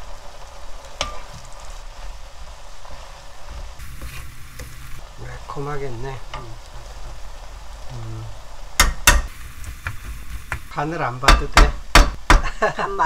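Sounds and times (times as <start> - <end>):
food sizzling in a frying pan: 0.0 - 13.0
wooden spoon scraping a pan: 2.8 - 5.0, 9.2 - 10.8.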